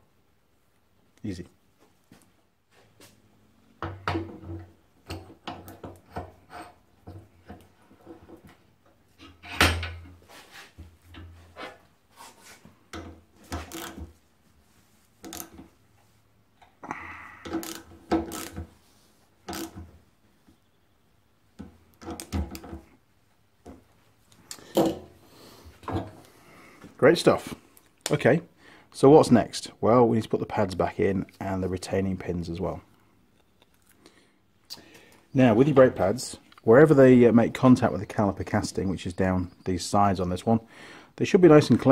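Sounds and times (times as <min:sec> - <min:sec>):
ratchet clicks: 0:13.7 - 0:14.0, 0:17.5 - 0:18.6.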